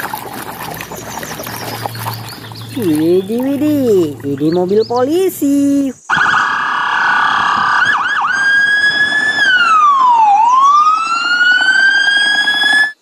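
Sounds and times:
police siren yelping and wailing: 0:06.1 - 0:13.0.

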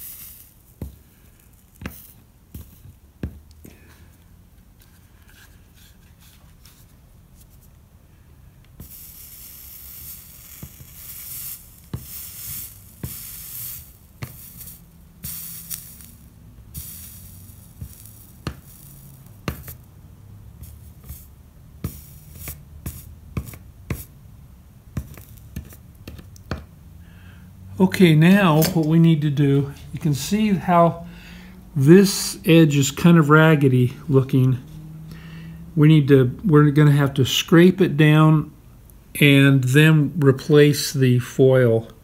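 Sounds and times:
flux sizzling: 0:00.0 - 0:00.9, 0:08.8 - 0:19.9
sharp crackles and pops: 0:00.0 - 0:03.6, 0:08.8 - 0:19.9, 0:25.0 - 0:26.5.

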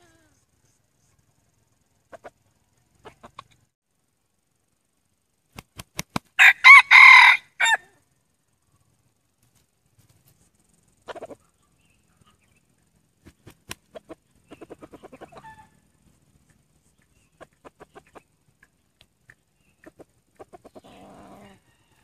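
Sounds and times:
junglefowl clucking: 0:02.1 - 0:03.7, 0:11.0 - 0:12.6, 0:13.7 - 0:16.0, 0:17.0 - 0:18.8, 0:19.6 - 0:22.0.

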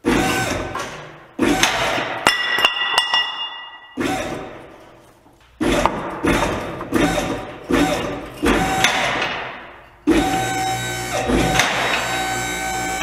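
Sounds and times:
ringing metallic clink: 0:02.3 - 0:04.0.

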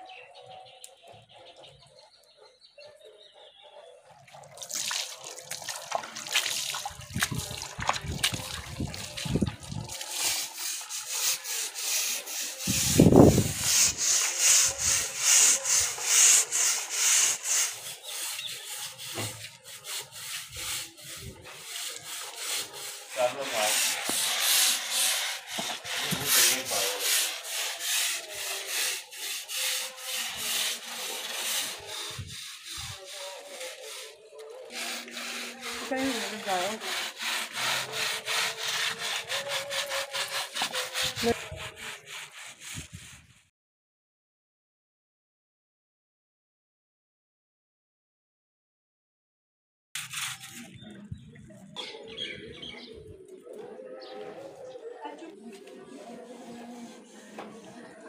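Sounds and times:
scrub brush rasping on cord: 0:05.8 - 0:42.9, 0:56.2 - 0:57.6.

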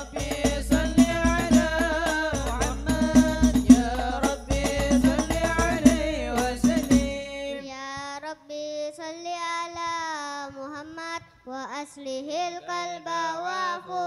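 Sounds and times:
frame drums beating: 0:00.0 - 0:07.6
voices singing: 0:00.0 - 0:08.4, 0:11.6 - 0:14.0
single voice singing ornamented line: 0:00.0 - 0:14.0.

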